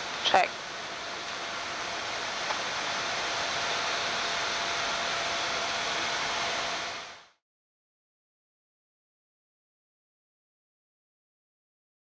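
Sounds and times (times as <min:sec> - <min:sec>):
rushing air and machinery noise: 0:00.0 - 0:07.4.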